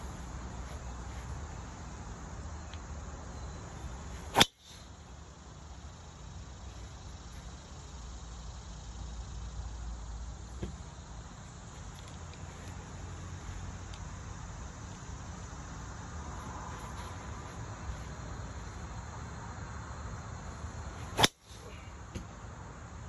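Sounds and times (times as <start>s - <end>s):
golf club striking ball: 4.3s - 4.8s, 21.2s - 21.6s.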